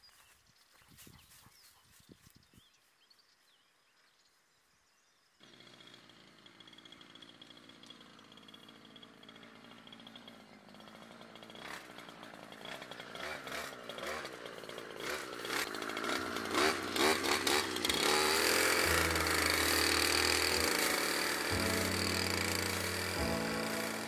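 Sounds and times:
brush cutter cutting grass: 5.4s - 24.0s.

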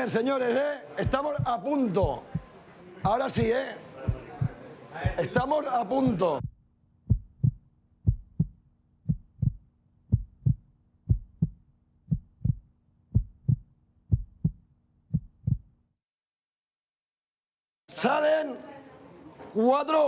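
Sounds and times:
heartbeat thumps: 1.0s - 15.8s.

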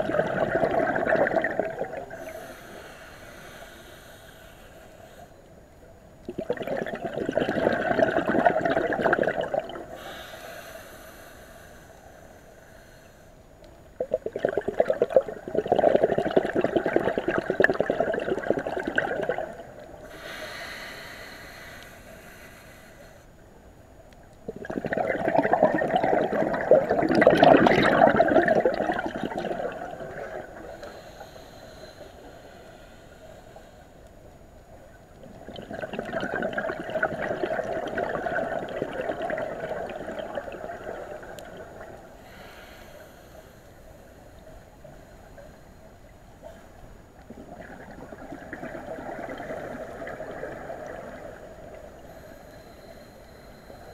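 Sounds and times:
bubbling exhaled air: 0.0s - 3.9s, 6.2s - 11.3s, 14.0s - 22.6s, 24.5s - 32.9s, 35.3s - 43.2s, 47.2s - 53.9s
regulator inhalation hiss: 2.2s - 5.4s, 10.0s - 13.4s, 20.0s - 23.4s, 30.7s - 34.0s, 42.2s - 45.9s, 52.0s - 53.9s.

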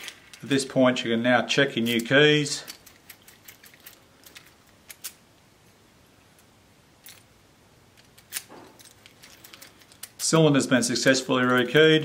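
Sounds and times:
keys clinking on a ring: 1.8s - 5.2s, 8.0s - 10.4s.

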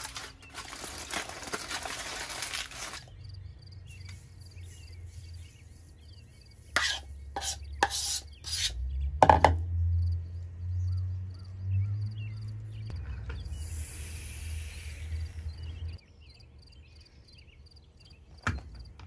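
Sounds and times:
spoon scraping batter from bowl: 6.7s - 8.7s.

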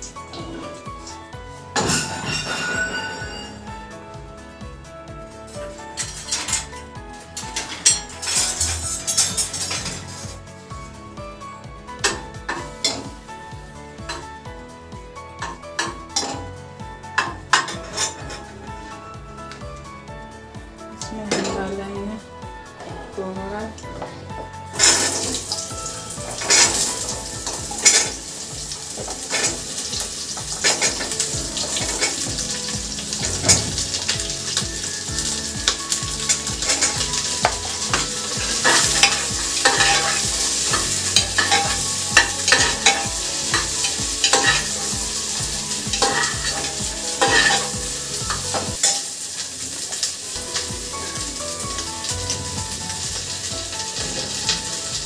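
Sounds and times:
vegetables sizzling in hot oil: 24.8s - 55.0s
ladle scraping and knocking pot: 26.2s - 34.6s, 35.7s - 45.0s, 45.9s - 49.0s.

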